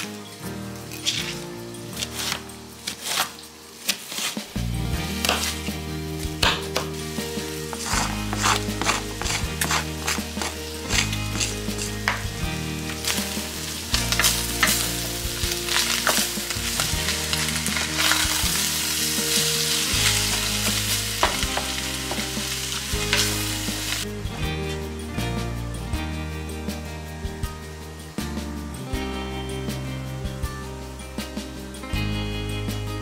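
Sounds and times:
background music: 0.0 - 33.0
meat and onion sizzling in a pot: 0.0 - 33.0
wooden spoon scraping a pot: 0.9 - 5.8, 6.4 - 12.3.

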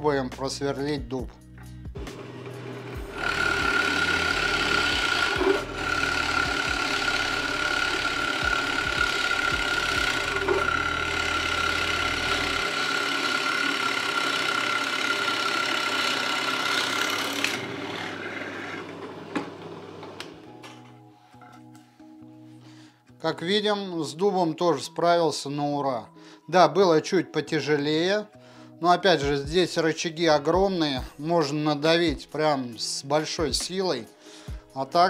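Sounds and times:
drill press motor whine: 2.1 - 20.4
drill bit rasping through wood: 2.2 - 19.1.

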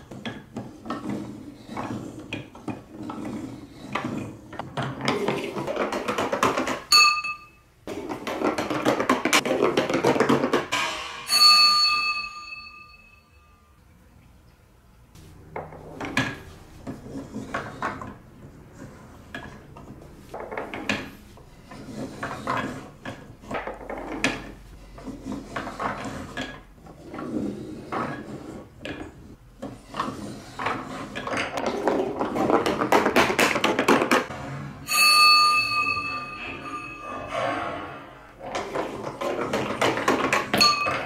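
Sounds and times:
plastic balls knocking and rattling: 0.0 - 11.3, 15.4 - 34.3, 38.3 - 41.0.

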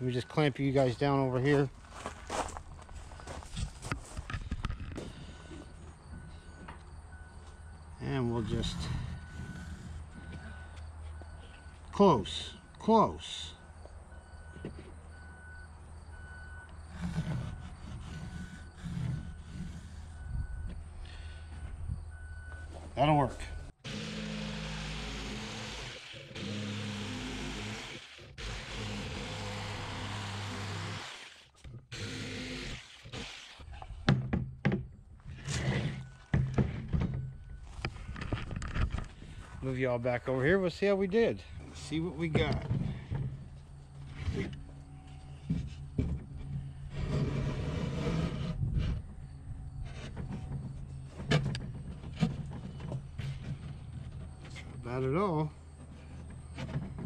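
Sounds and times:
jigsaw cutting wood: 23.8 - 33.6.

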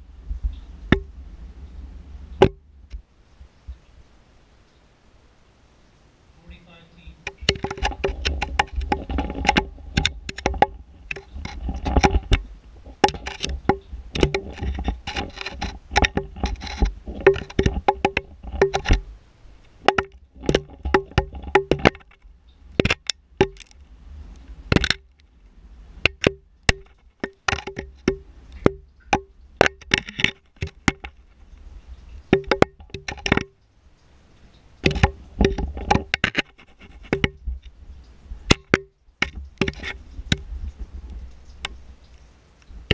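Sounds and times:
low rumble: 0.0 - 3.0
echoing clicks and knocks: 2.4 - 3.0, 7.2 - 23.8, 24.7 - 25.3, 26.0 - 31.4, 32.2 - 33.7, 34.8 - 37.7, 38.5 - 40.5.

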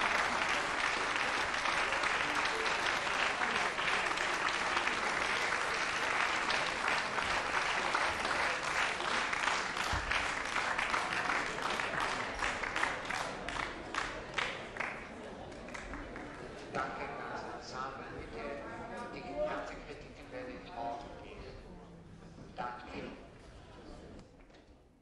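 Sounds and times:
audience applauding: 0.0 - 16.3.

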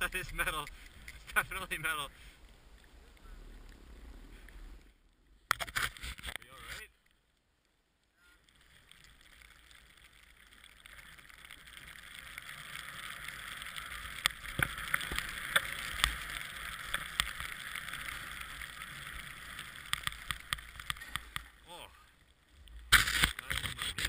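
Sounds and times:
snowboard sliding over snow: 11.0 - 21.5.

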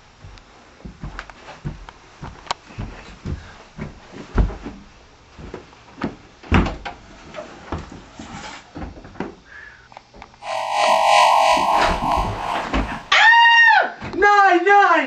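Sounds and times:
footsteps down stairs: 0.2 - 4.8.

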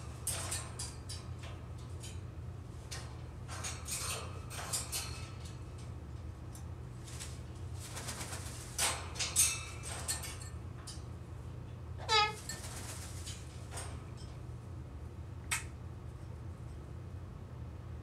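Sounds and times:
parrot clicks and calls: 15.5 - 15.7.

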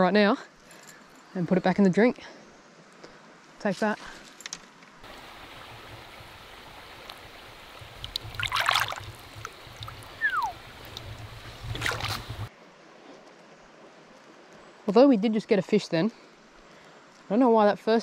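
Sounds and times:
water splashing: 5.0 - 12.5
falling whistle: 10.2 - 10.6.

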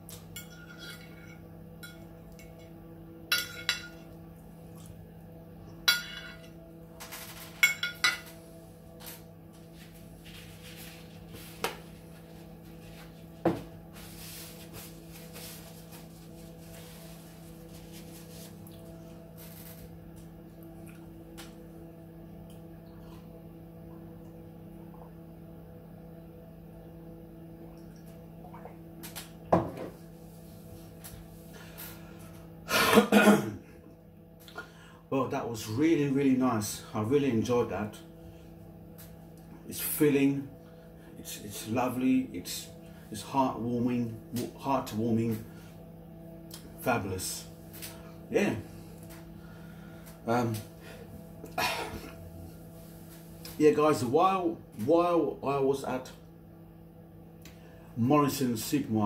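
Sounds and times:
low hum: 33.6 - 58.0.

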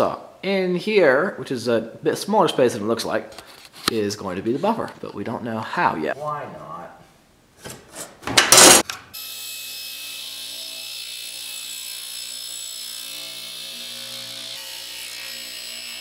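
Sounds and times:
table saw whirring: 8.5 - 16.0.

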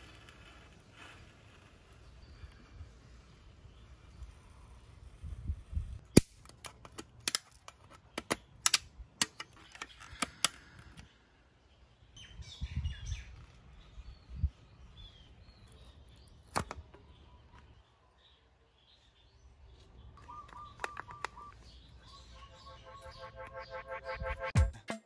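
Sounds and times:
hard plastic parts clicking: 6.2 - 11.0, 20.4 - 21.6
birds chirping: 7.8 - 24.5.

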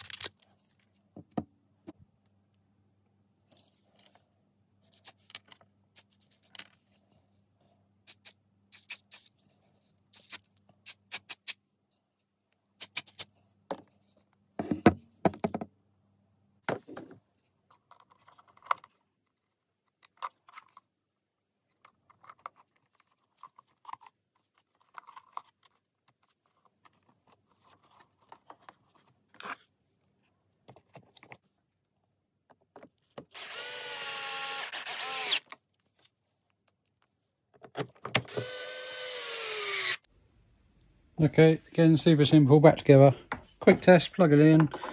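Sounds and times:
power drill driving screws: 33.3 - 35.5, 38.2 - 40.0.

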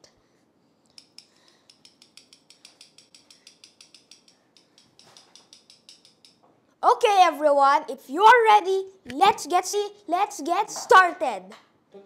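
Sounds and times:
bottle cap castanets clicking: 1.0 - 6.4.

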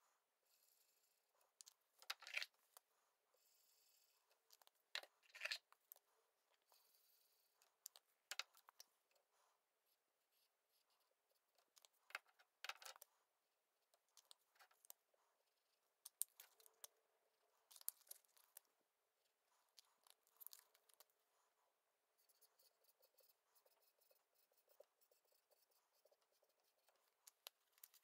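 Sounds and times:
marker scratching on whiteboard: 22.2 - 27.0.

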